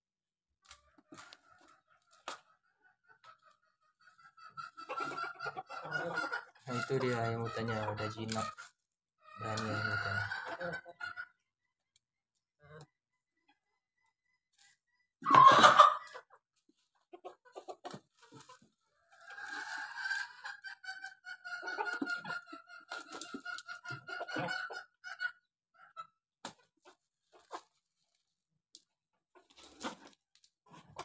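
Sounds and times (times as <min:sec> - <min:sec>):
chickens calling: 0:00.6 - 0:11.4, 0:14.5 - 0:27.8.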